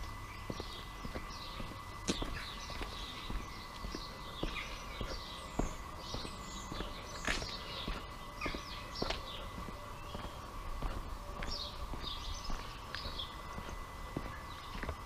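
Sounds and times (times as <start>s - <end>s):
faint steady hum: 0.0s - 15.0s
footsteps on stone paving: 0.0s - 15.0s
small birds chirping: 0.0s - 15.0s.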